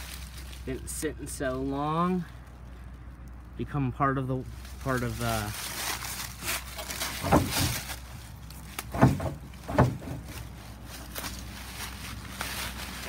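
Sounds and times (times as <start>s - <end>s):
faint rustling: 4.4s - 13.0s
dull thumps: 6.6s - 10.6s.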